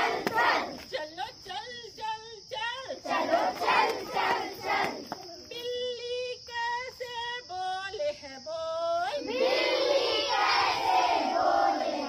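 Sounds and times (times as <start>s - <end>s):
children singing in chorus: 0.0s - 0.8s, 3.0s - 5.1s, 9.2s - 12.0s
woman singing: 5.5s - 9.3s.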